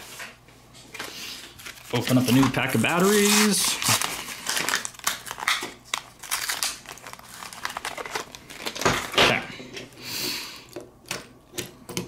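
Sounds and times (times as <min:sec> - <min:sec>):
paper packaging tearing and crinkling: 0:01.5 - 0:09.4.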